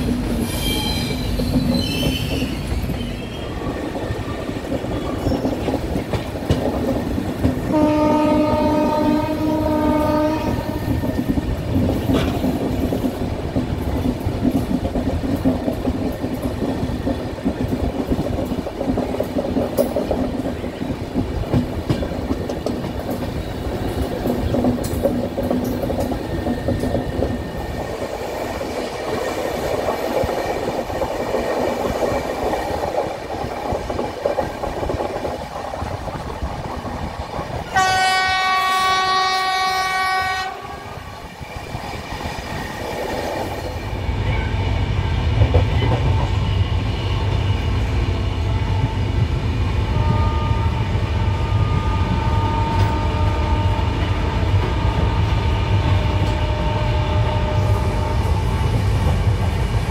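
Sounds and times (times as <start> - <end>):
train running on rails: 0.0 - 59.9
train horn blast: 7.6 - 11.1, 37.7 - 41.1, 49.9 - 58.5.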